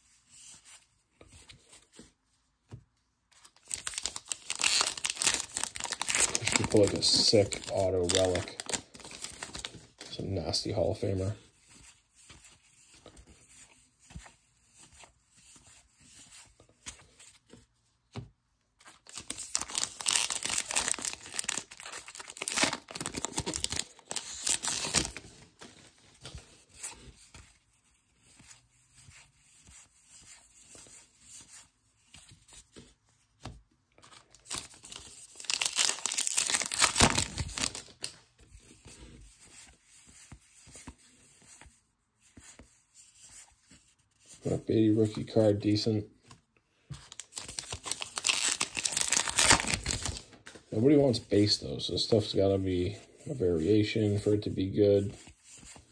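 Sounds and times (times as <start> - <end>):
quiet packaging rustling: 0.0 - 55.9
wrapper tearing and crinkling: 3.6 - 10.1, 19.0 - 25.3, 34.1 - 38.2, 47.1 - 50.3.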